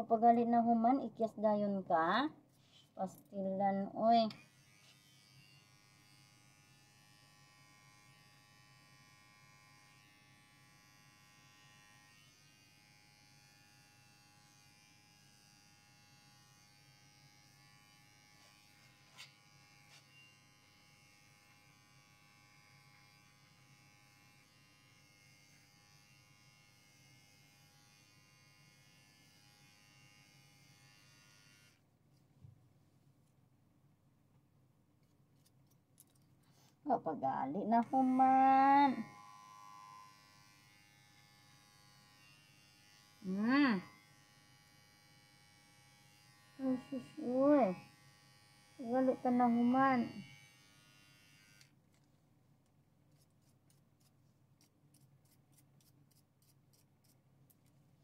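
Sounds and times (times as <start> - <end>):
electric pet hair clippers running: 4.3 - 31.8, 37.5 - 51.8.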